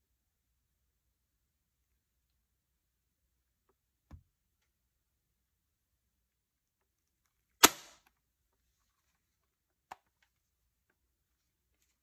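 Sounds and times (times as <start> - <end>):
salt gun shot: 7.6 - 8.0.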